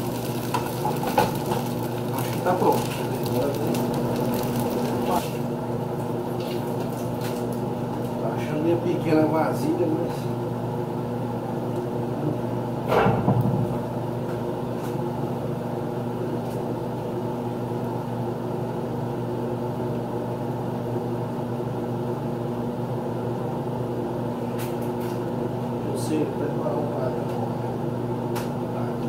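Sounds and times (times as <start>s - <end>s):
appliance motor humming: 0.0s - 8.2s.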